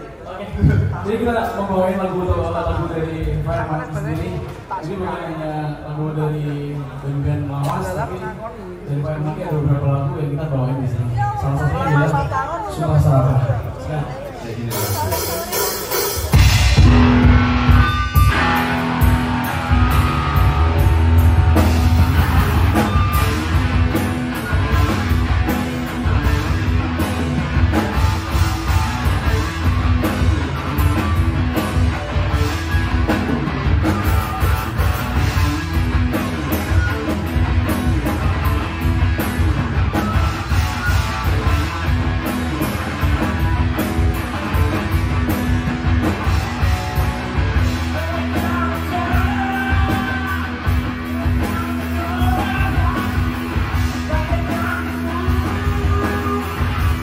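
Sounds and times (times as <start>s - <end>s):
drum kit: 14.6s - 57.0s
bass guitar: 14.7s - 57.0s
electric guitar: 14.7s - 57.0s
person singing: 47.7s - 57.0s.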